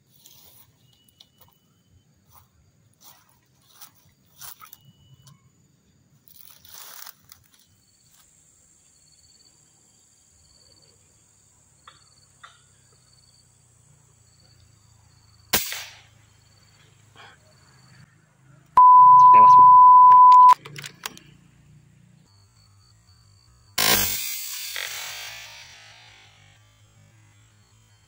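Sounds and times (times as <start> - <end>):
high insect drone: 0.1 - 18.1, 21.7 - 28.0
air rifle shot: 15.6 - 16.0.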